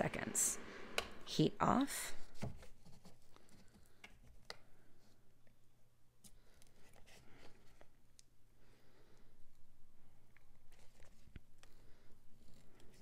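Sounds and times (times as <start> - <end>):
low steady hum: 0.0 - 2.5.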